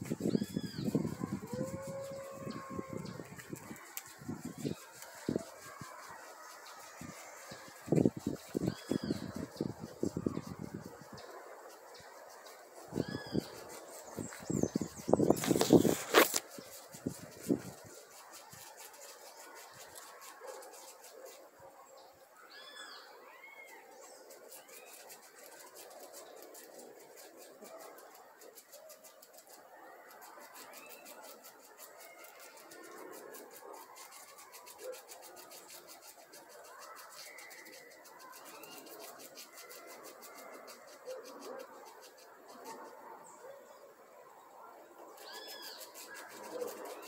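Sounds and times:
birds chirping: 0.0s - 17.7s.

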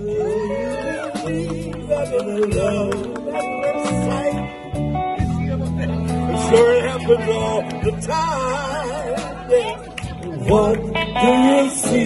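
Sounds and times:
slow rock song by band: 0.0s - 12.0s
wailing lead guitar line: 0.0s - 12.0s.

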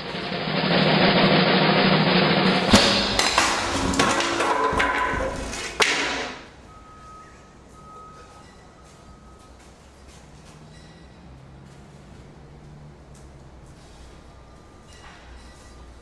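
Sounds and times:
snare drum roll: 0.0s - 6.5s
loud crash: 0.0s - 6.6s.

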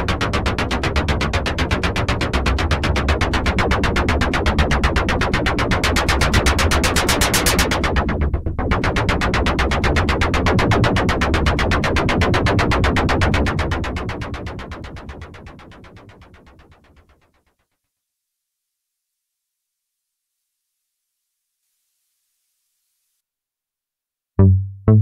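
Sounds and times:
low synth bass: 24.4s - 25.0s
percussive synth pulses: 24.4s - 25.0s.

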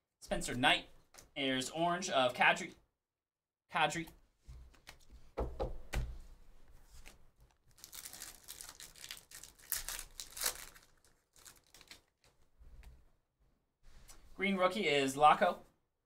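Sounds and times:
foil wrappers ripping and crinkling: 7.6s - 12.4s.

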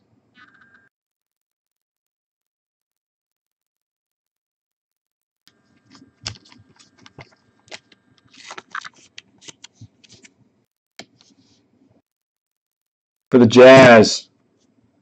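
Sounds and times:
card sliding into plastic sleeve: 5.9s - 10.4s.

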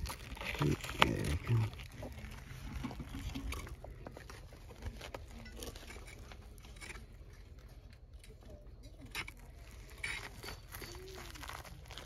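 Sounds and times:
rock clicking and scraping: 0.0s - 8.4s.

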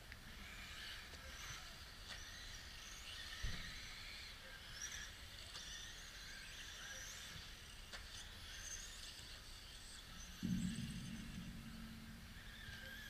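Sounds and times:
electric motors whining: 0.0s - 13.0s
sharp knock: 10.4s - 13.0s.

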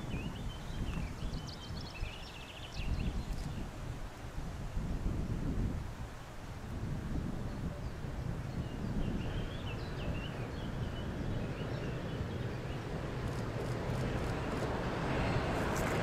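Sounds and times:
wind buffeting microphone: 0.0s - 16.0s
distant freight train rumble: 9.2s - 16.0s.

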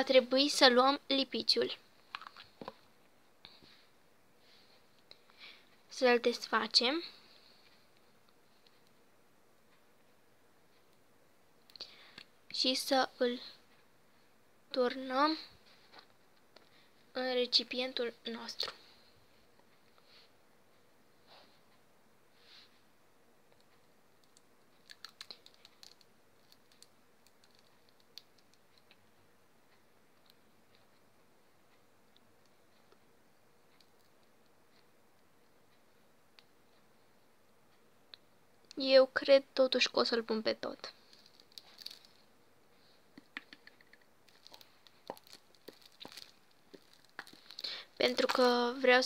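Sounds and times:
soft hiss: 0.0s - 49.0s
fingers tapping plastic tube: 43.2s - 44.1s.

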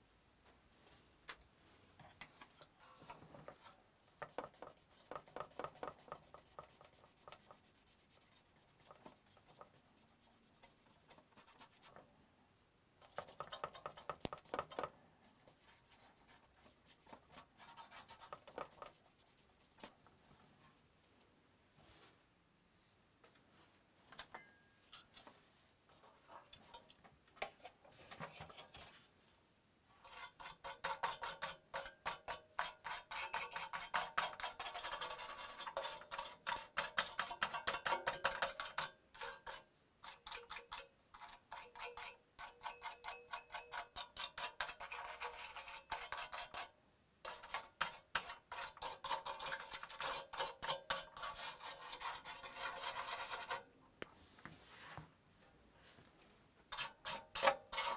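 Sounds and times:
scrubbing on metal plate: 30.0s - 53.7s
faint scrapes: 47.3s - 55.1s.

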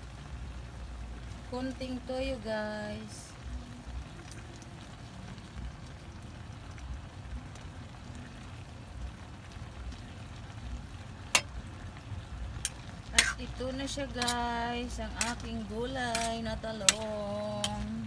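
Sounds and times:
food simmering in a wok: 0.0s - 18.0s
metal ladle clinking on wok: 16.1s - 17.9s.

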